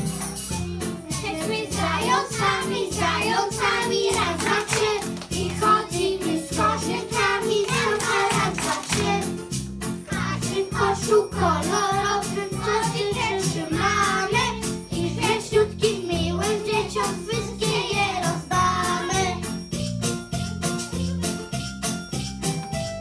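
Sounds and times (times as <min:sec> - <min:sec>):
backing music with steady beat: 0:00.0 - 0:23.0
children singing: 0:01.1 - 0:09.3, 0:10.1 - 0:19.4.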